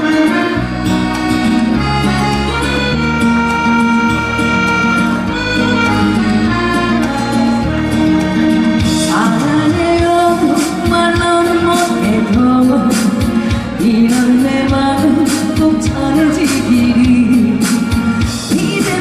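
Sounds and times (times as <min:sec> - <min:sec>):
instrumental song intro: 0:00.0 - 0:11.4
woman singing: 0:09.0 - 0:19.0.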